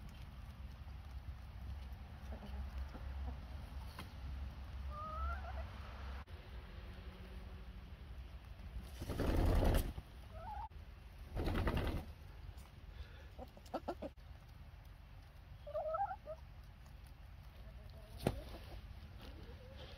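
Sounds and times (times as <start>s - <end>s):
hens clucking: 2.1s - 4.1s, 4.7s - 5.9s, 9.4s - 10.8s, 13.0s - 19.9s
hens flapping wings: 8.8s - 10.0s, 11.2s - 12.2s.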